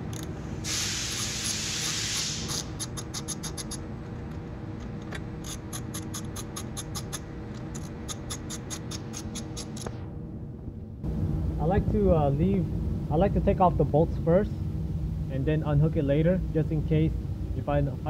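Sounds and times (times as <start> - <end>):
ratchet wrench clicking: 0.1 - 0.3, 1.1 - 3.8, 5.4 - 9.9.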